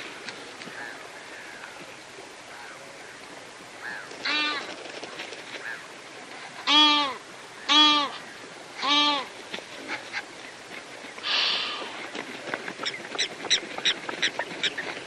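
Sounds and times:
outdoor hiss: 5.5s - 12.2s
loud animal calls: 6.6s - 9.3s.

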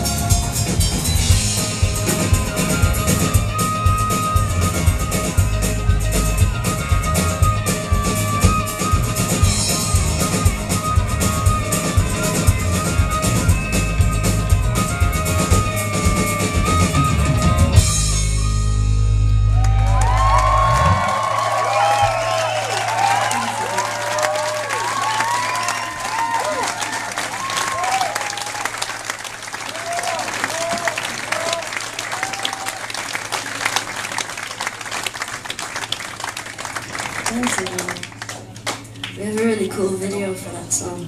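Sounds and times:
drum kit: 0.0s - 24.3s
live rock band playing: 0.0s - 25.9s.

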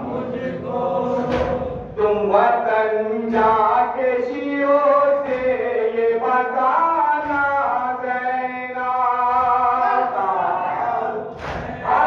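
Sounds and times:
men chanting: 0.0s - 12.0s
lead voice over microphone: 7.2s - 12.0s.

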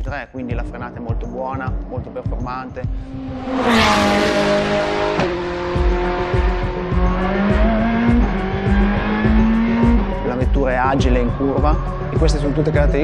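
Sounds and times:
race car engine at speed: 2.8s - 13.0s.

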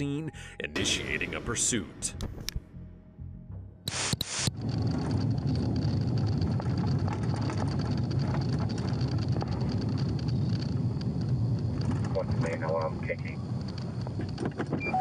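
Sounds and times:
car road and engine rumble: 4.5s - 15.0s.

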